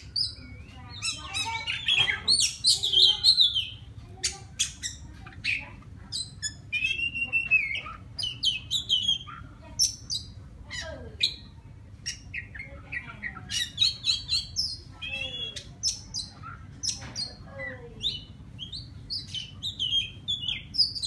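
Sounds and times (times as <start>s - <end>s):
bird singing whistles and chirps: 0.0s - 3.8s, 6.2s - 9.3s, 12.1s - 17.0s, 18.0s - 21.0s.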